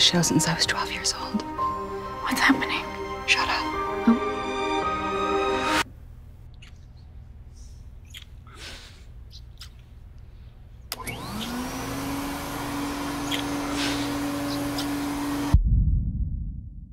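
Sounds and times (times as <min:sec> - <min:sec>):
vacuum cleaner motor whine: 0:10.9 - 0:15.6.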